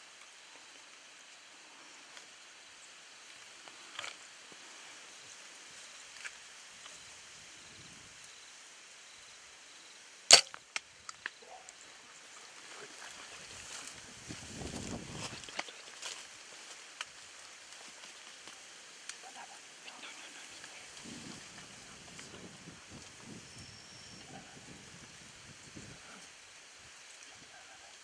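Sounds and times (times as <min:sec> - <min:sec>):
faint outdoor hiss: 0:00.0 - 0:28.0
bow string snap: 0:10.3 - 0:10.9.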